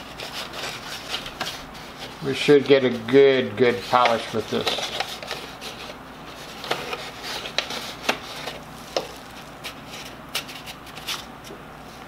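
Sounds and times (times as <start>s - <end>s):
sanding belt rubbing and scraping: 3.7s - 8.6s.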